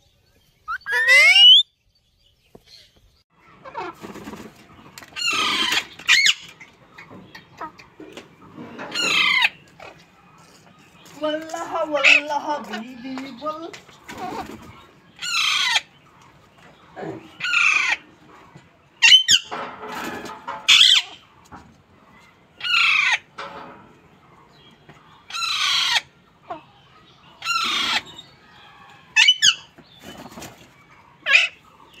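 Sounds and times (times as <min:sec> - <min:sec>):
parakeet squawks: 0:00.7 - 0:01.6
parakeets calling: 0:00.7 - 0:01.6, 0:08.9 - 0:10.6, 0:14.0 - 0:16.0, 0:17.3 - 0:18.1, 0:22.6 - 0:23.3, 0:24.5 - 0:32.0.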